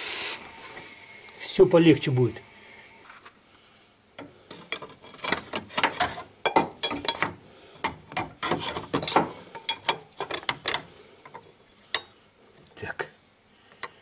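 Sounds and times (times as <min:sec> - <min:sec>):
metal wrench clinking and scraping: 0:04.5 - 0:12.1.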